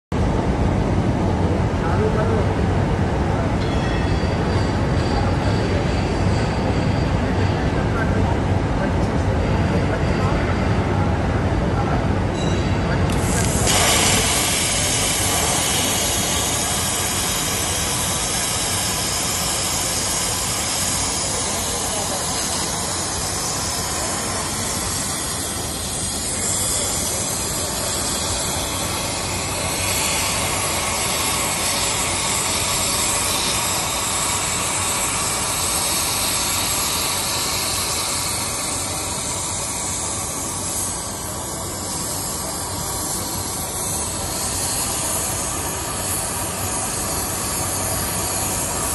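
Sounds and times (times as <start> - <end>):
plasma torch hissing: 13.1 - 48.9.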